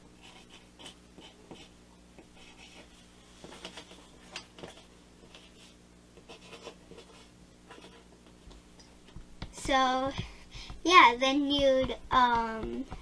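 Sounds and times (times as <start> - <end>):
pencil scratching on paper: 0.2 - 4.0, 6.3 - 8.1.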